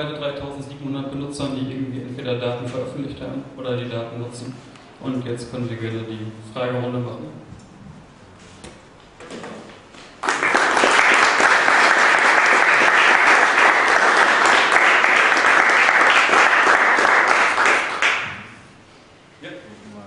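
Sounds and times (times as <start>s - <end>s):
audience applauding: 10.2s - 18.5s.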